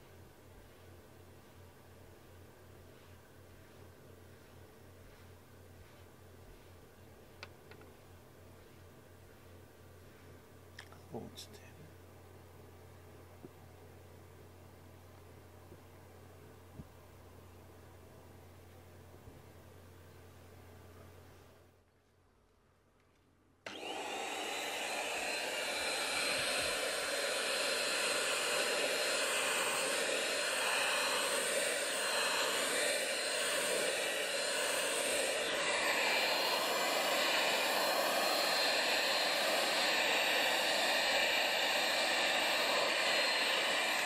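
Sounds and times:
vacuum cleaner running: 0:23.6 - 0:44.0.

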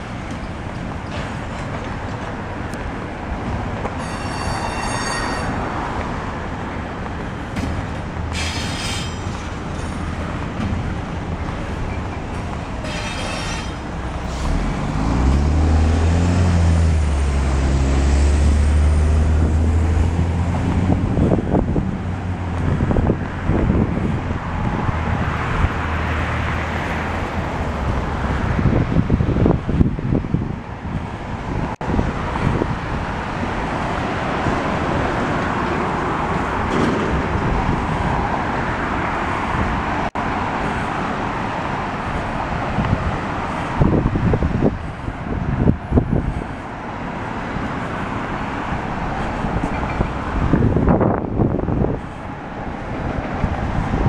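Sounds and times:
freight train rolling past: 0:00.0 - 0:23.4
high-pitched train squeals: 0:04.0 - 0:05.9, 0:08.3 - 0:09.5, 0:11.9 - 0:14.6
heavy vehicle engine drone: 0:05.4 - 0:54.0.

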